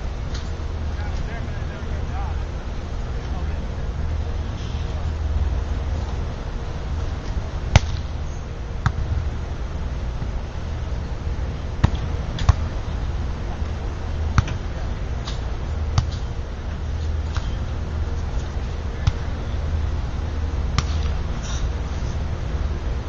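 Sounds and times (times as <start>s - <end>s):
low background noise: 0.0s - 23.0s
volleyball slapping off hands: 7.7s - 8.1s, 20.8s - 21.2s.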